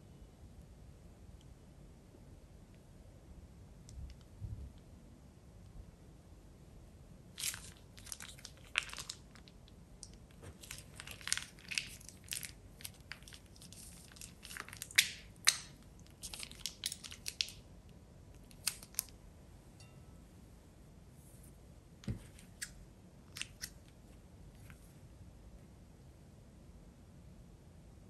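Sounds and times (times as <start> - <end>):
plastic piping bag crinkling: 7.4 - 17.6, 18.4 - 19.1.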